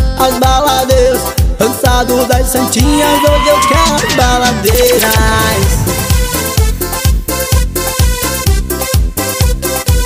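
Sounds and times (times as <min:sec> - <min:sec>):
band playing dance music: 0:01.0 - 0:08.0
bass thumps: 0:04.0 - 0:08.0.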